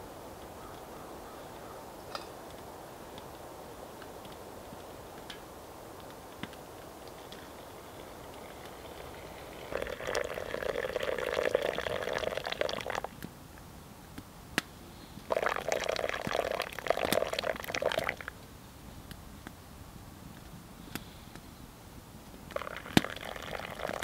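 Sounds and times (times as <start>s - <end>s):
water pouring into metal mug: 8.0s - 13.1s, 15.3s - 18.3s, 22.5s - 24.0s.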